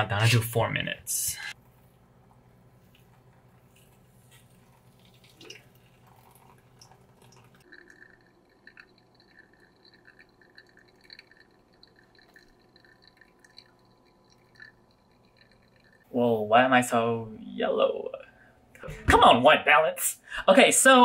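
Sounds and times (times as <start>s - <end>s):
coffee dripping through filter: 2.3s - 16.2s.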